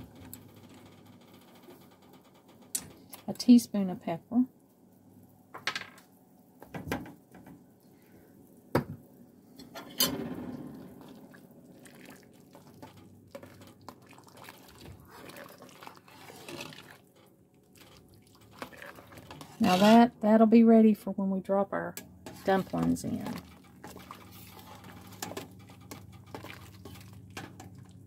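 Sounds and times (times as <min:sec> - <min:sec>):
broth bubbling and sloshing: 0:10.3 - 0:20.0, 0:22.2 - 0:28.0.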